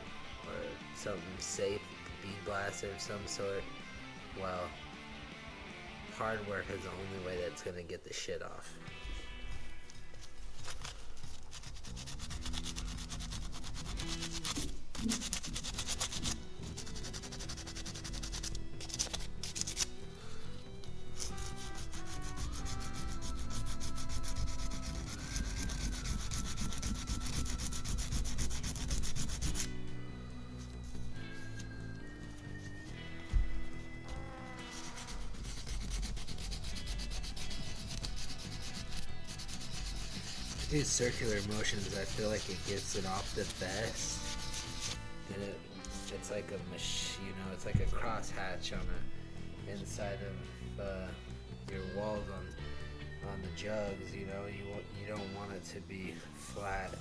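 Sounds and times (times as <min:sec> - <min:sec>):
sandpaper rubbing on metal: 0:10.6 - 0:19.9, 0:21.2 - 0:29.8, 0:34.6 - 0:45.1.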